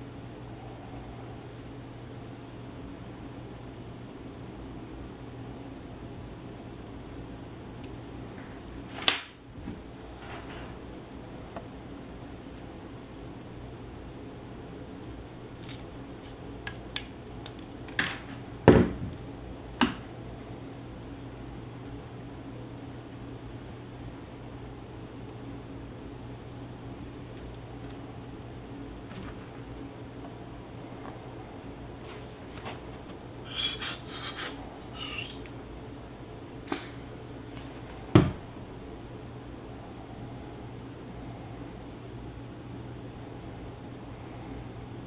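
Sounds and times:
click: 27.4 - 28.1.

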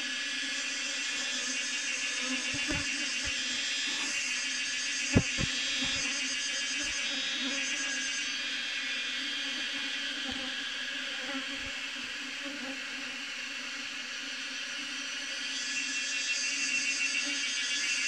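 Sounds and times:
bees buzzing: 1.1 - 7.8
sharp tap: 5.2 - 6.0.

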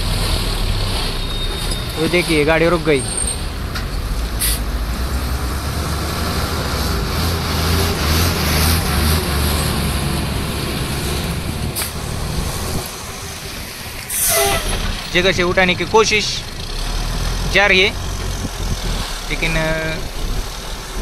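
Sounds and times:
diesel truck engines droning: 0.0 - 21.0
short hisses: 4.4 - 4.7.

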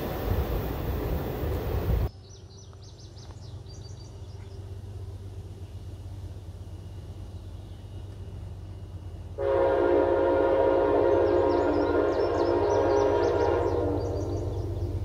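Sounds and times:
low rumble of train: 0.0 - 15.0
train horn chord blast: 9.4 - 15.0.

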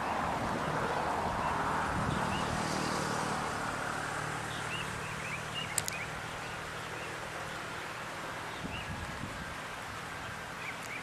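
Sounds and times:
birds chirping faintly: 0.0 - 11.0
rushing background noise: 0.0 - 11.0
sharp clicks: 5.7 - 6.0.

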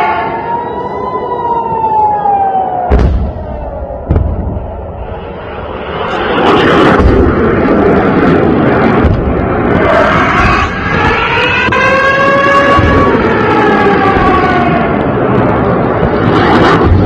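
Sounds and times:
air-raid siren wailing: 0.0 - 17.0
sharp booms: 2.8 - 17.0
low thuds: 2.9 - 5.2, 6.8 - 11.8
rocket motor roaring: 2.9 - 17.0.

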